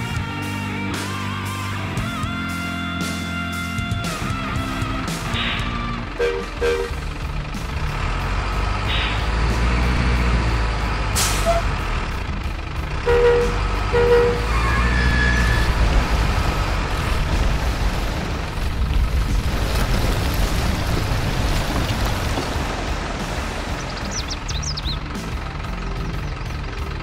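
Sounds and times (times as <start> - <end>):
truck engine rumble: 0.0 - 27.0
air brake hiss: 11.2 - 11.6
water splashing: 15.8 - 24.2.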